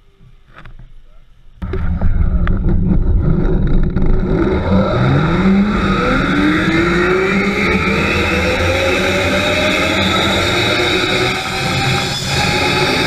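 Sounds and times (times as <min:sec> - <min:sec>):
wind noise on microphone: 0:01.6 - 0:07.9.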